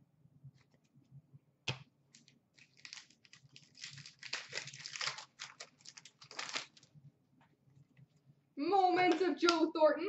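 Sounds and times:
foil wrapper crinkling and tearing: 2.1s - 7.0s.

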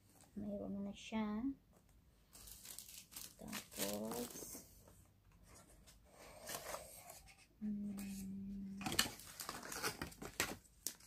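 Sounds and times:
packaging rustling and crinkling: 2.3s - 4.7s, 8.8s - 11.0s.

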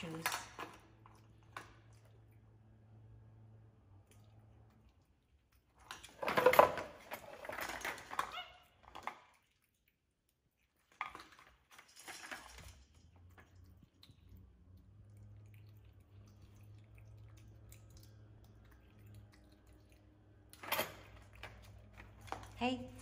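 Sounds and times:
plastic toys rattling: 5.8s - 9.3s, 11.0s - 13.0s.

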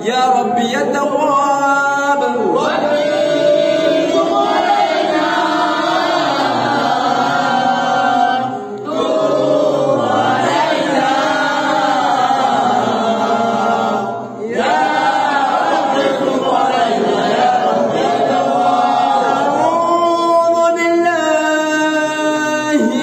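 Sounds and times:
men chanting in unison: 0.0s - 23.0s.

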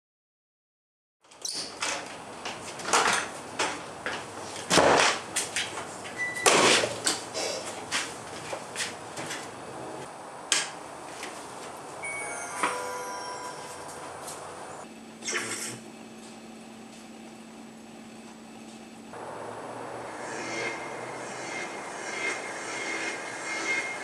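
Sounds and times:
electric hum: 9.3s - 11.0s.

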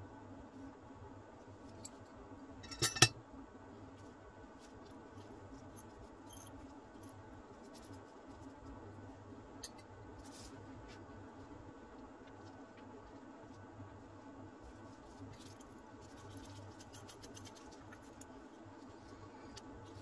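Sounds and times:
metal tools clanking on metal: 2.6s - 3.1s
small bolts clicking and scraping: 2.6s - 3.1s.

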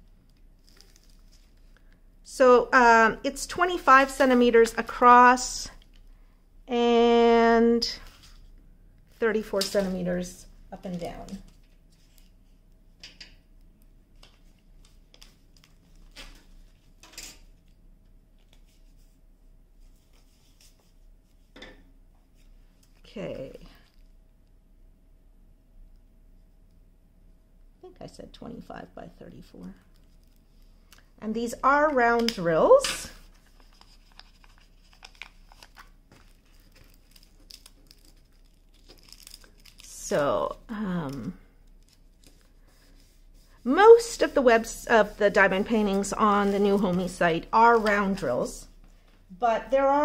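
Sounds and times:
soft rustles of handling: 0.0s - 2.1s, 7.8s - 24.6s, 29.6s - 31.2s, 33.1s - 49.3s
faint steady hum: 0.0s - 50.0s
plastic bags crinkling: 33.2s - 42.6s.

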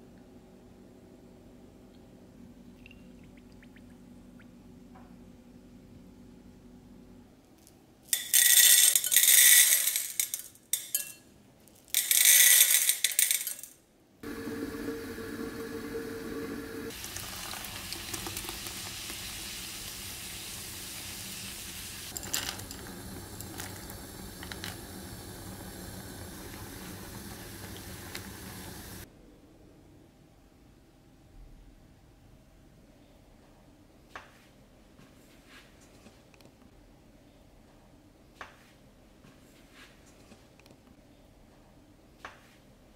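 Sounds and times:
low hum: 14.2s - 17.0s
porridge simmering and bubbling: 14.2s - 29.1s.

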